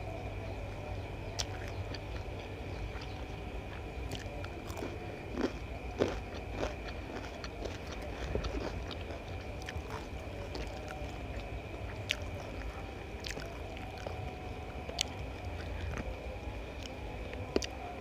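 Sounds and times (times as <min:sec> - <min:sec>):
steady low hum: 0:00.0 - 0:18.0
chewing with wet mouth sounds: 0:00.7 - 0:18.0.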